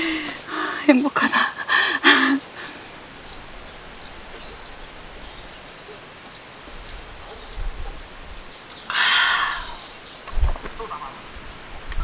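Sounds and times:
steady background hiss: 0.0s - 12.0s
faint bird chirps: 2.2s - 11.4s.

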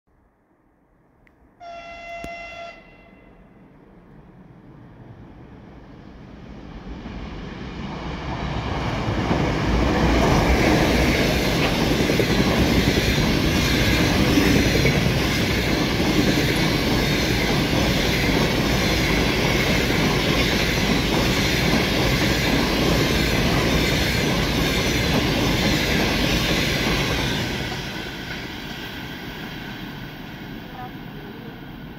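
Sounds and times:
train rushing past: 1.6s - 31.9s
wheels clattering on rail: 8.9s - 30.0s.

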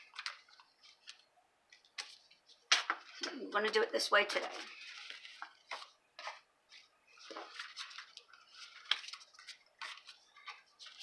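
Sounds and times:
paper rustling and sliding: 4.4s - 11.0s.

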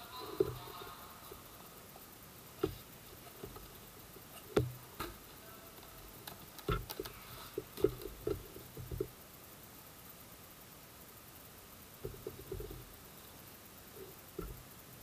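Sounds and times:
taps and knocks on cardboard box: 4.5s - 5.2s.

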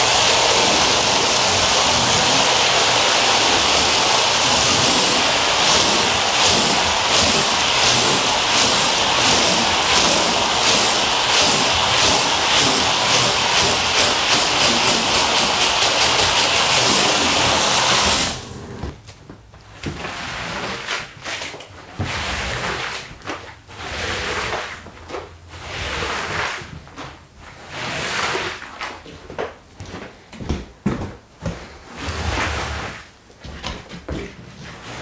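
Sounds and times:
hose spraying water: 0.0s - 18.9s
squeegee scraping wet rug: 0.0s - 18.9s, 19.7s - 29.0s, 31.4s - 35.0s.

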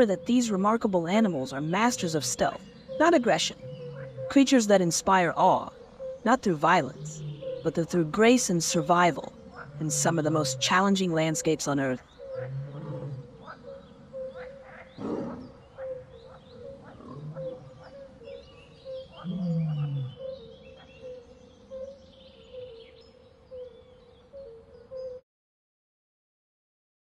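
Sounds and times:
pulsing insect chirr: 0.0s - 14.7s
big cat growling: 12.4s - 13.6s, 14.8s - 15.6s, 16.5s - 18.0s, 19.2s - 20.2s.

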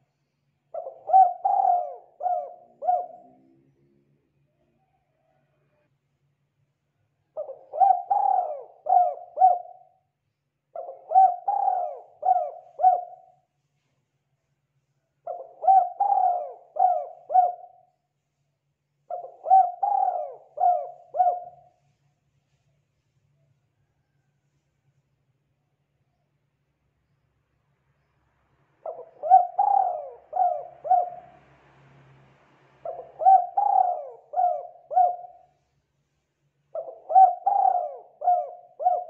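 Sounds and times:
dove cooing: 0.7s - 3.6s, 7.4s - 10.0s, 10.7s - 13.4s, 15.2s - 17.9s, 19.1s - 21.8s, 28.8s - 31.4s, 32.8s - 35.6s, 36.7s - 39.0s.

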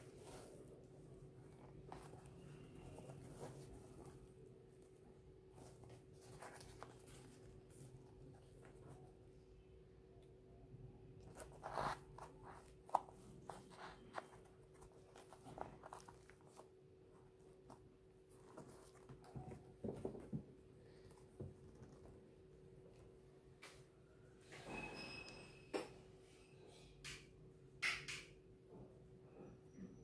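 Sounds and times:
sneakers rustling when handled: 0.0s - 9.2s, 11.2s - 22.4s.

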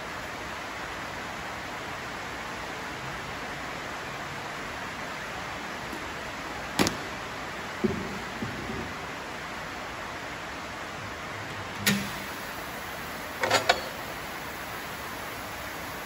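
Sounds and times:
rain hissing: 0.0s - 16.0s
metallic clanks of tyre lever: 13.4s - 14.0s.

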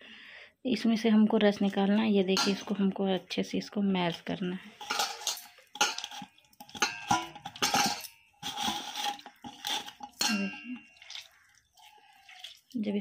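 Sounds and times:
steel bowl clinks: 2.4s - 2.8s, 4.8s - 11.0s
wet squishing by hand: 8.4s - 13.0s.

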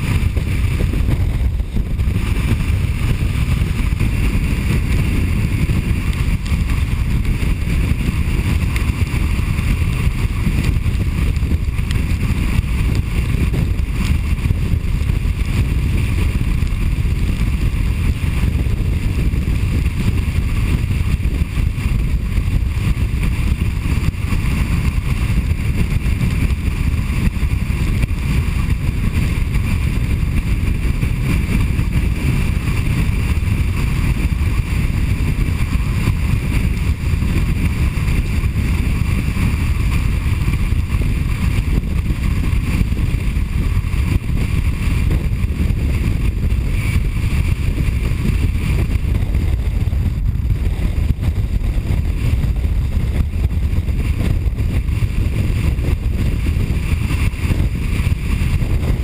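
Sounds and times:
car road and wind noise: 0.0s - 59.0s.

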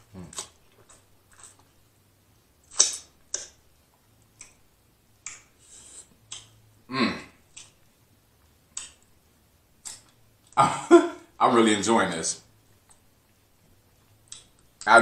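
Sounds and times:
wet lip smacks and mouth clicks: 2.6s - 3.6s, 5.2s - 6.6s, 7.5s - 7.9s, 9.8s - 10.6s, 13.9s - 14.9s.

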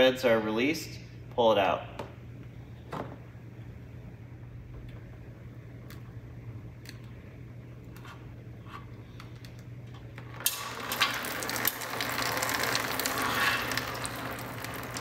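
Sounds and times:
oil dripping into pan: 10.4s - 15.0s
oil pouring and splashing: 10.4s - 15.0s.

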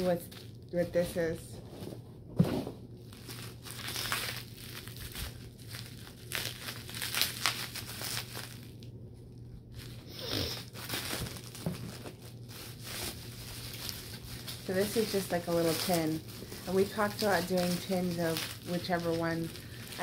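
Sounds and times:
bubble wrap crinkling: 0.0s - 1.5s, 2.9s - 20.0s.

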